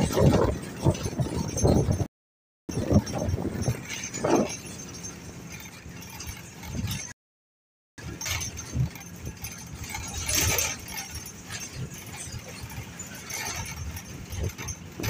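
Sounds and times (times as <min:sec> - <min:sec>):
rattling and jangling: 0:00.0 - 0:02.1, 0:02.7 - 0:07.2, 0:08.0 - 0:15.0
rumbling road noise: 0:00.0 - 0:02.1, 0:02.7 - 0:07.2, 0:08.0 - 0:15.0.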